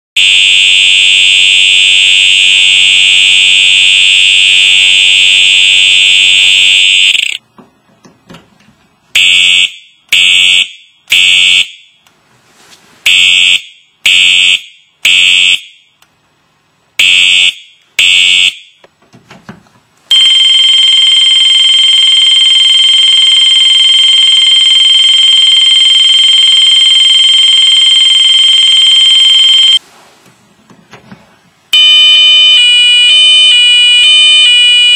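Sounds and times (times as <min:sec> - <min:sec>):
fire alarm horn tone with buzz: 0:00.2 - 0:07.4, 0:09.2 - 0:12.0, 0:13.1 - 0:16.0, 0:17.0 - 0:18.8, 0:20.1 - 0:29.8, 0:31.8 - 0:34.9
high-pitched alarm tone: 0:00.2 - 0:07.4, 0:20.1 - 0:29.8, 0:31.8 - 0:34.9.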